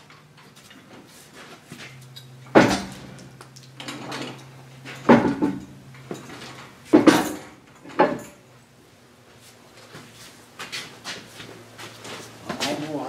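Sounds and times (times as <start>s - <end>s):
steady low hum: 0.0s - 13.0s
heavy steel parts knocking: 3.8s - 8.4s.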